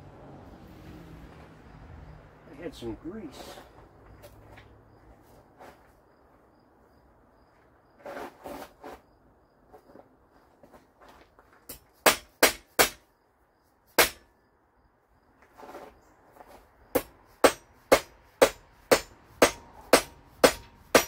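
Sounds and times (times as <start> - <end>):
scraping and handling of parts: 9.6 - 12.0
hammer striking metal: 12.0 - 13.0, 14.0 - 14.2, 17.0 - 21.0.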